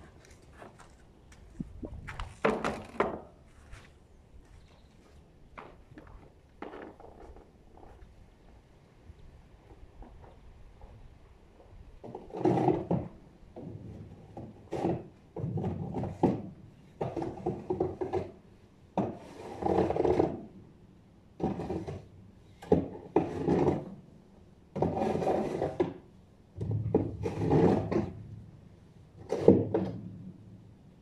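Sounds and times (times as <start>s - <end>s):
snow scraped off paving stones: 27.1s - 28.2s.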